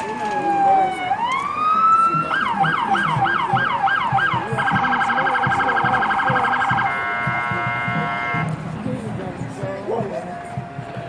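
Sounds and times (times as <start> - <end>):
electronic siren yelp and warble: 0.0 - 8.4.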